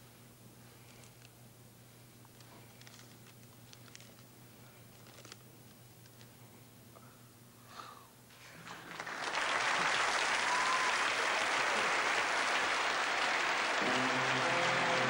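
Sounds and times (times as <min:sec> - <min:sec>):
studio audience applause: 0:08.6 - 0:15.0.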